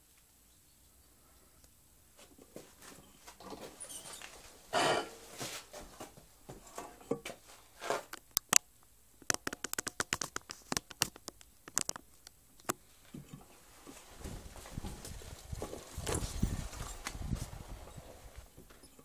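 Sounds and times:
sharp irregular clicks: 8.1s - 12.8s.

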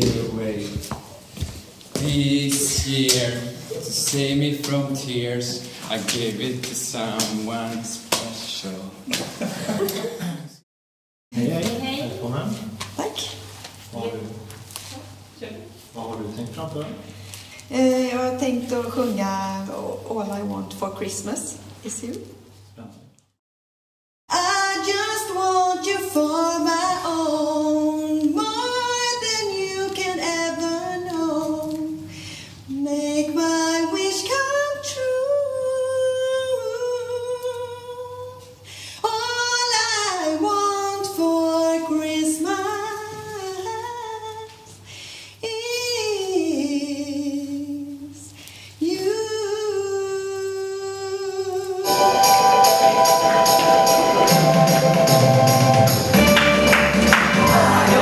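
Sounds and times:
voices singing: 2.0s - 7.7s, 49.3s - 58.0s
woman singing unaccompanied: 17.7s - 20.5s, 24.3s - 32.1s, 32.7s - 44.7s, 45.4s - 51.9s
loud backing music: 51.8s - 58.0s.

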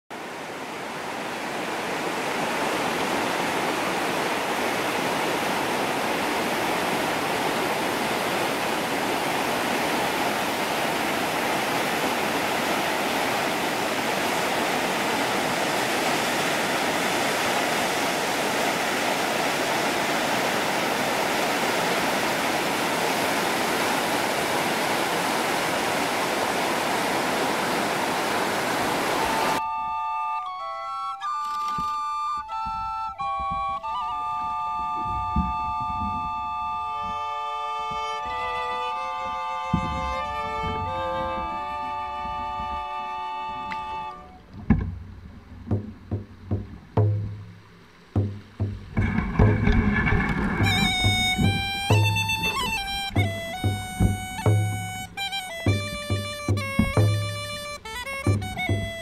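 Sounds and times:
river rapids rushing over rocks: 0.2s - 29.6s, 48.9s - 59.0s.

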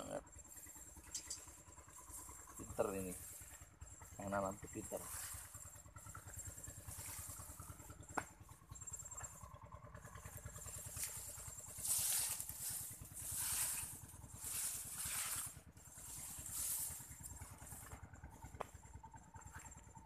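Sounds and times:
steady low rumble: 0.0s - 20.0s
corn leaves rustling: 10.6s - 18.0s.

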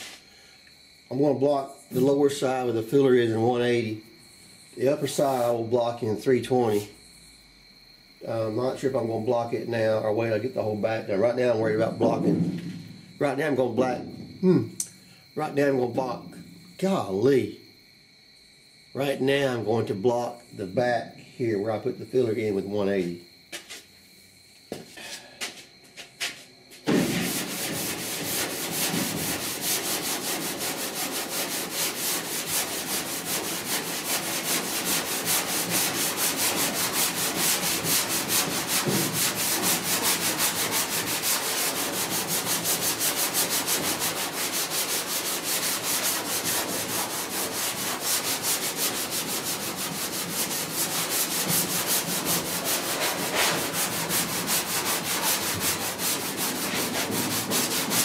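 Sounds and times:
sanding block rubbing back and forth: 26.2s - 58.0s.

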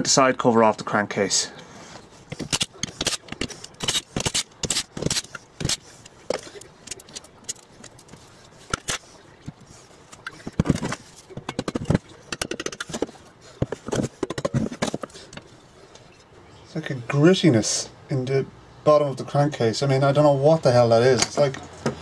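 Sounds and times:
metal tools clinking: 5.6s - 9.1s.

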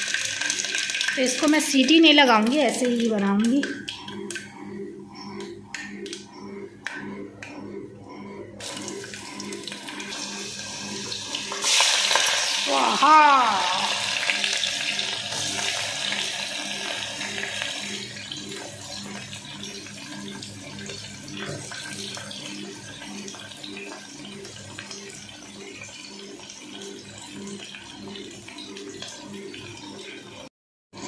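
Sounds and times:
onions sizzling in hot oil: 11.3s - 17.8s.

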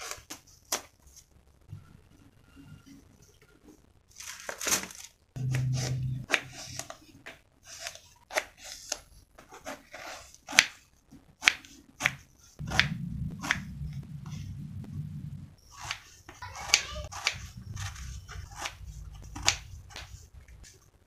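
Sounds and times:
plastic bag rustling: 4.1s - 5.2s
short low hum: 5.4s - 6.8s, 12.6s - 15.8s, 16.9s - 20.7s.

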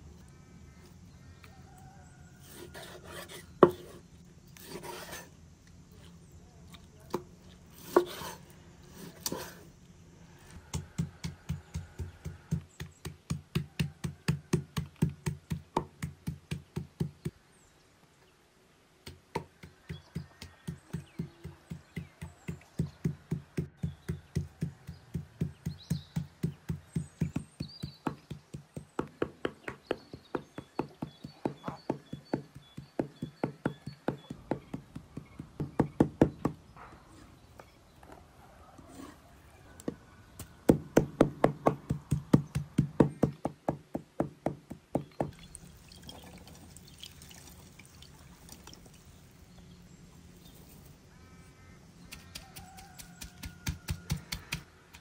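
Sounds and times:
knife chopping meat on wooden board: 10.7s - 17.3s, 19.1s - 36.4s, 52.1s - 55.0s.

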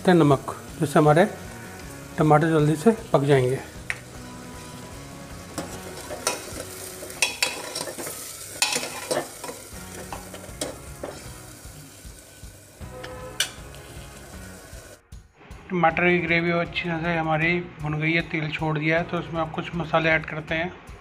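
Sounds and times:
puree sizzling in hot oil: 0.0s - 15.0s
metal ladle scraping a pot: 5.6s - 11.3s, 12.8s - 14.0s.

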